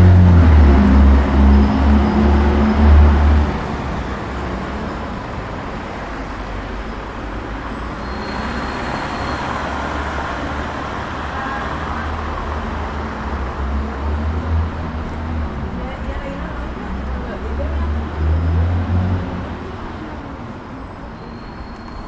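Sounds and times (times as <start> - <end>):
tyres hissing on wet road: 0.0 - 15.6
vehicle engine rumble: 0.0 - 22.0.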